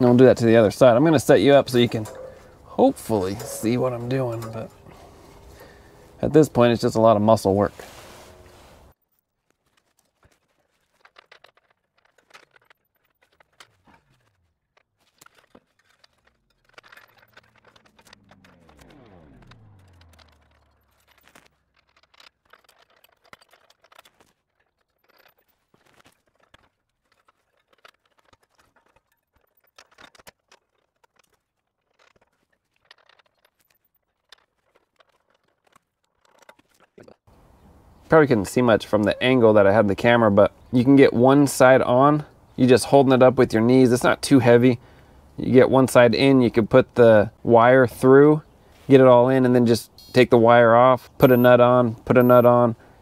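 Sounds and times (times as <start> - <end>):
metal clicks knocks and scrapes: 0.0 - 9.0, 9.6 - 37.0.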